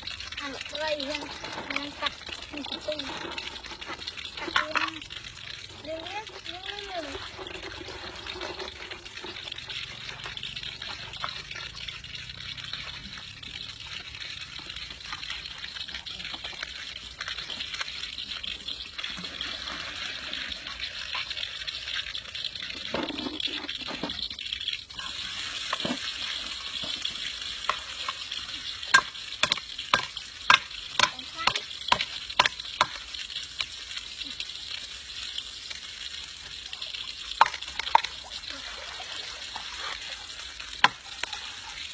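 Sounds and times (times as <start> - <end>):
food sizzling in a pan: 0.0 - 41.9.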